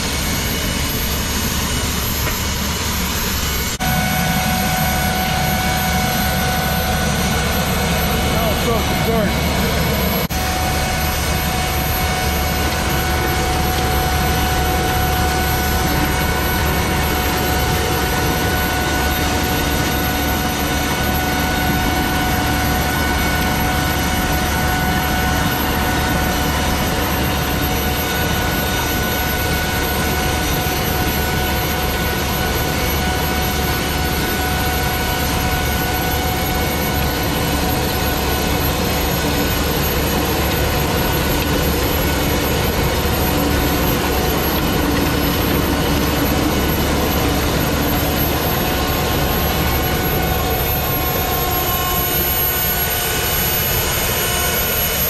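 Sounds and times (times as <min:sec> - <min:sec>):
gas turbine whine: 0:00.0 - 0:55.0.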